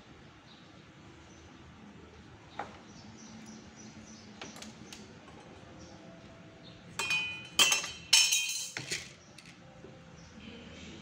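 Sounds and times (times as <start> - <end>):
hard objects clinking: 7.0 - 9.6.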